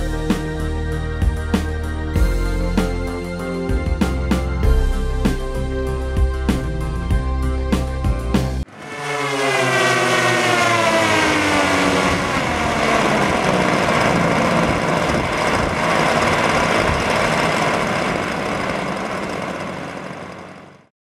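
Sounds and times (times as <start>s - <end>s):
falling whine: 4.4s - 20.9s
steady rushing roar: 8.5s - 20.9s.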